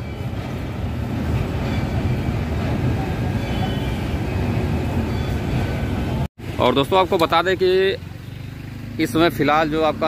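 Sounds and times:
train rumbling over bridge: 0.0s - 6.6s.

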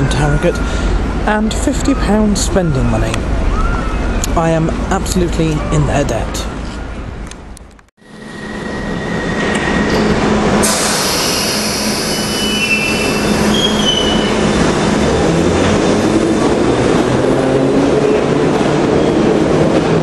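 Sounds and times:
train rumble: 0.0s - 20.0s
high wheel squeals: 8.1s - 15.0s
brake hiss: 10.6s - 13.6s.

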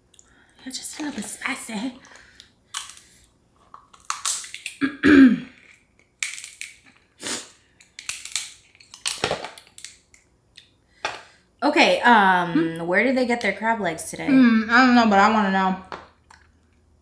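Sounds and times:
shellfish shells cracking: 2.2s - 4.8s, 5.6s - 10.8s.

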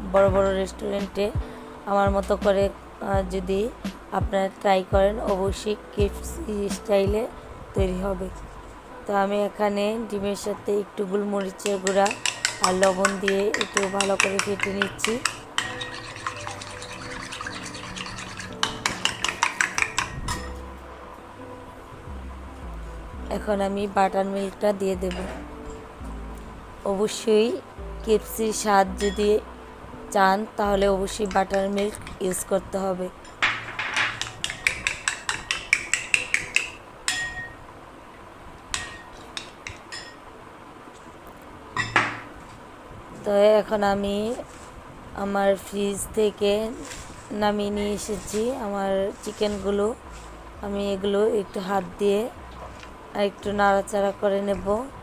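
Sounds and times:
soft stirring: 11.2s - 20.9s, 33.2s - 37.6s, 46.2s - 54.9s
spoon clinking against bowl: 11.4s - 20.6s, 33.3s - 37.6s, 38.8s - 40.2s.

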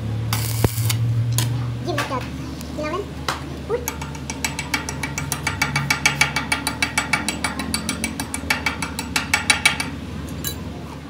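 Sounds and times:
chipping tool tapping metal: 0.3s - 1.5s, 3.8s - 10.5s.

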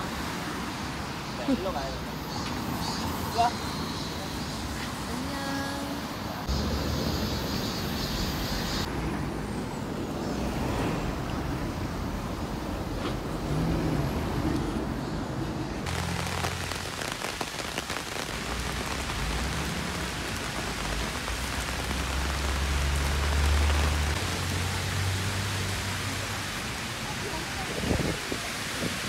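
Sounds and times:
heavy rain on pavement: 0.0s - 8.9s, 15.8s - 29.0s
passing traffic hum: 0.0s - 29.0s.

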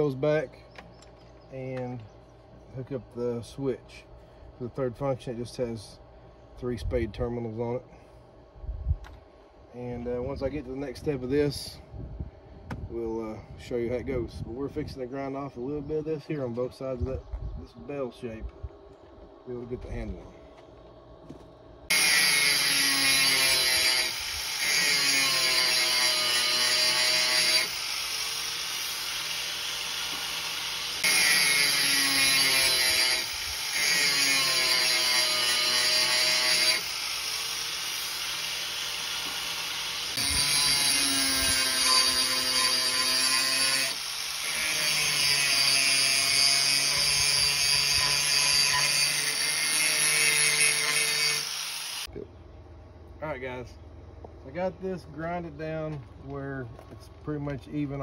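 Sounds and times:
angle grinder grinding steel: 21.9s - 52.1s.

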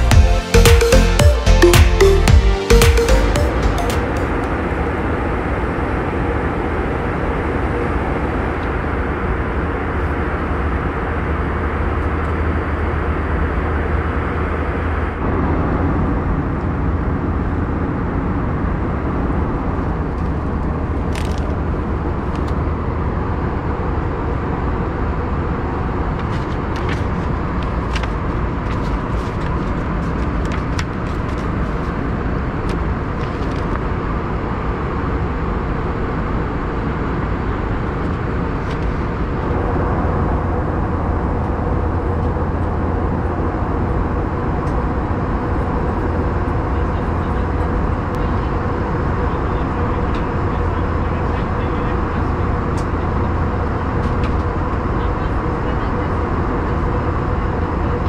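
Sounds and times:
airliner cabin rumble: 4.0s - 58.0s
paper clicks and rustles: 21.1s - 21.6s, 26.2s - 32.0s, 32.6s - 33.8s.

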